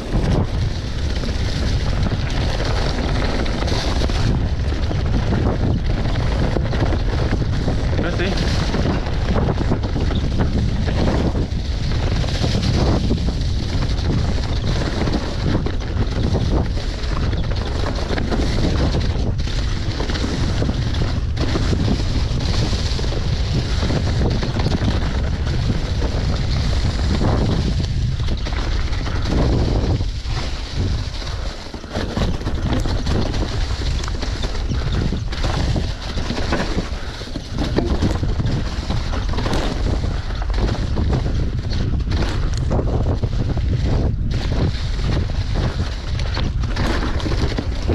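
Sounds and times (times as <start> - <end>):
mountain bike rumbling and rattling: 0.0 - 47.9
wind rushing over microphone: 0.0 - 47.9
bike knocking over bumps: 0.1 - 47.9.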